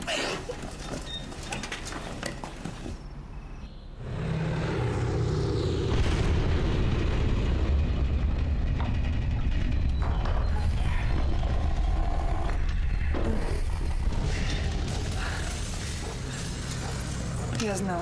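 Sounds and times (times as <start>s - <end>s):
deep distant bombardment rumble: 4.8s - 17.5s.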